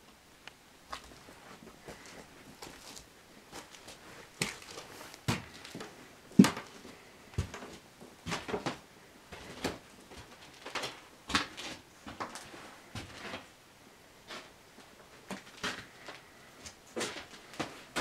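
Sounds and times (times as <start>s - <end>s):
footsteps on bare floor: 0.9s - 10.4s.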